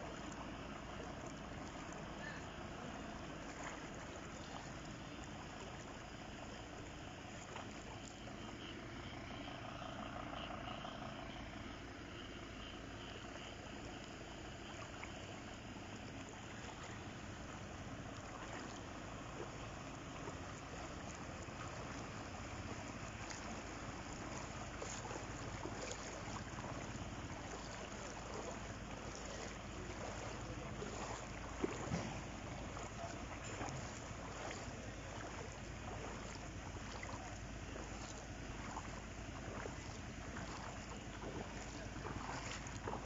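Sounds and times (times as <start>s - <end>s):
steady rushing water: 0.0s - 11.6s, 12.9s - 43.0s
water splashing around wading legs: 0.0s - 43.0s.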